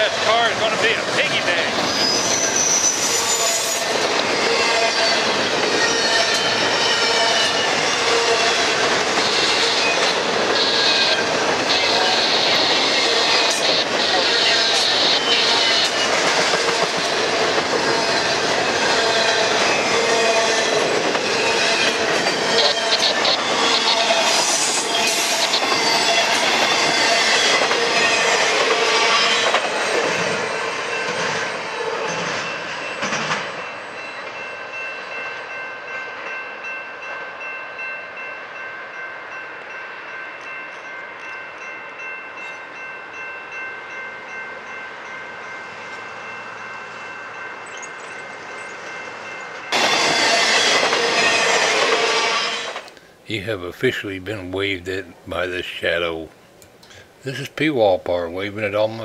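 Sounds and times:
freight train wheels clattering: 0:00.0 - 0:34.6, 0:47.5 - 0:52.9
crossing warning bell ringing: 0:00.0 - 0:52.9
distant train rumble: 0:00.0 - 0:59.0
wheel squeal: 0:01.7 - 0:16.1.

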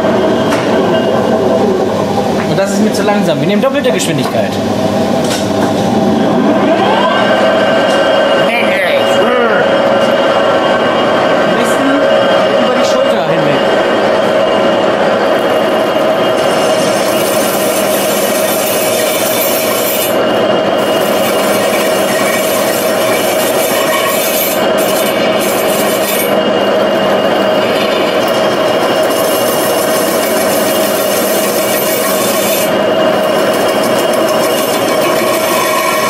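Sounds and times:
lathe humming: 0:00.0 - 0:36.0
steel scraping metal wheel: 0:16.3 - 0:36.0.

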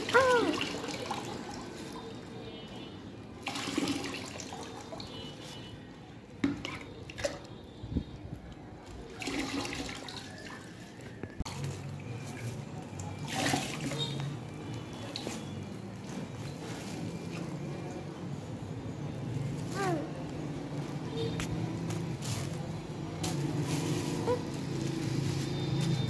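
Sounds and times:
water pouring and splashing: 0:00.0 - 0:05.7, 0:06.3 - 0:07.6, 0:08.8 - 0:18.0, 0:21.5 - 0:26.0.

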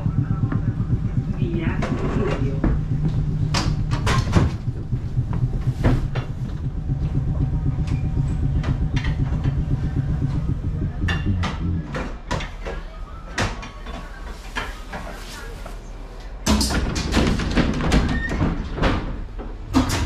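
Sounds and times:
tram rumbling on rails: 0:00.0 - 0:20.0
sharp clicks and knocks: 0:00.4 - 0:12.8.

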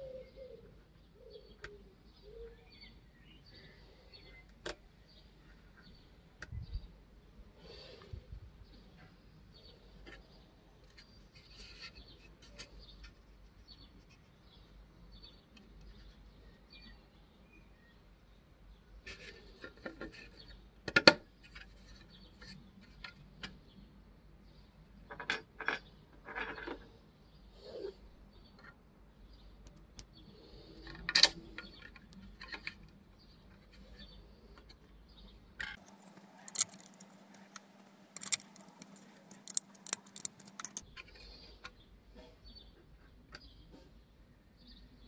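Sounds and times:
allen key clicking on plastic: 0:35.8 - 0:40.8.

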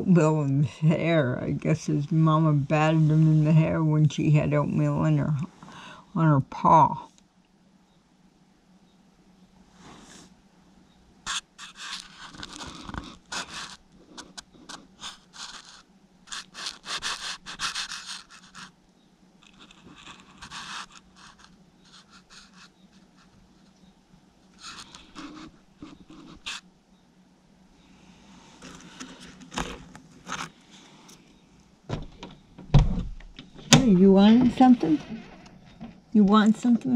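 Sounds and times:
raccoons chewing: 0:11.3 - 0:18.7, 0:24.5 - 0:26.6.

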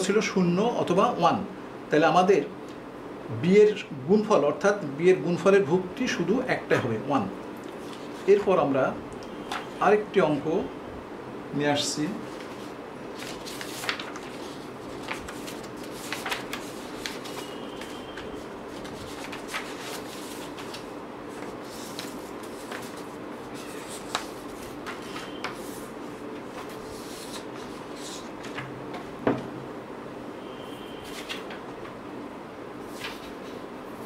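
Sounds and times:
faint hum: 0:00.0 - 0:34.0
paper sheets shuffling: 0:07.7 - 0:08.5, 0:12.0 - 0:29.0, 0:31.0 - 0:32.0, 0:32.8 - 0:33.6.

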